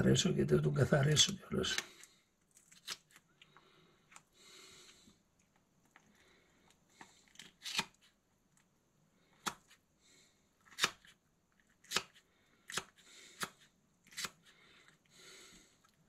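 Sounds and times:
knife cutting fish: 7.3 - 8.0, 11.8 - 14.5.

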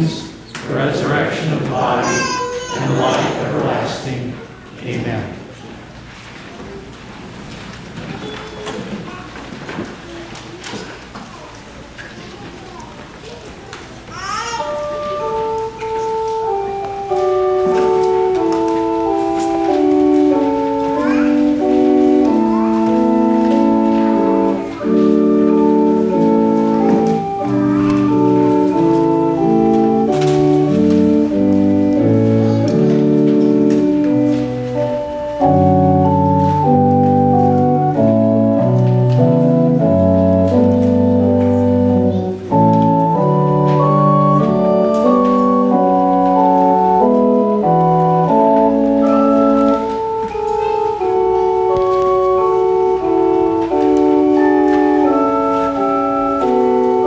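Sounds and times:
church organ playing chords: 0.0 - 5.4, 14.6 - 57.0.

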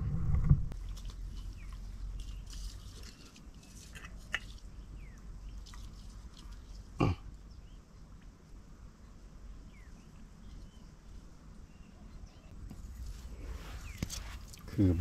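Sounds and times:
short low grunt: 7.0 - 7.3.

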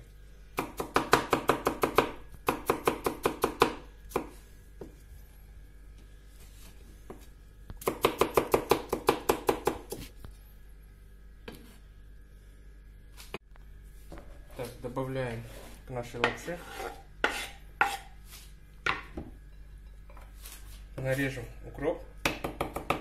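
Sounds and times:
knife chopping on wooden board: 0.6 - 5.0, 7.8 - 10.1, 16.2 - 18.2, 22.2 - 23.0.

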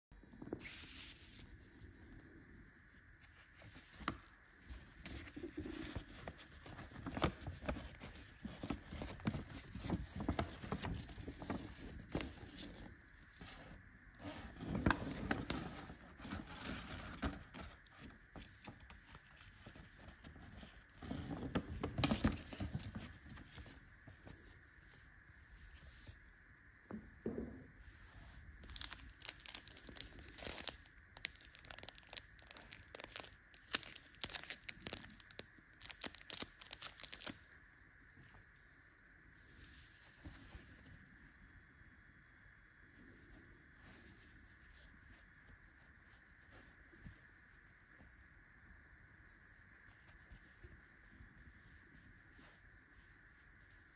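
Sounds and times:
paper rustling and crinkling: 3.0 - 26.2, 27.9 - 37.5
plastic sleeve crinkling: 3.2 - 24.4, 28.6 - 37.6.

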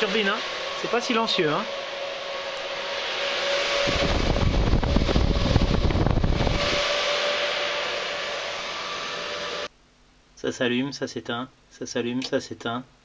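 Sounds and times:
loud fluttering low rumble: 0.0 - 9.4
cooling fans rushing hiss: 0.0 - 9.7.

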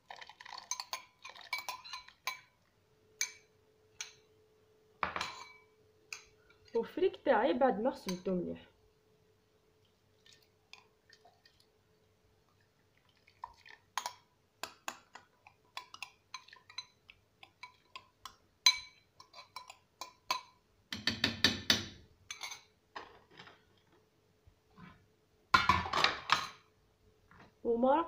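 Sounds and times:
spoon scraping ceramic bowl: 0.5 - 2.5, 18.7 - 20.5.

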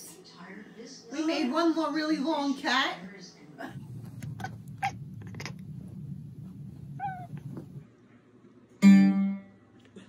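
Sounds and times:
cat chirping: 3.8 - 7.8
guitar strings ringing: 8.8 - 9.6.

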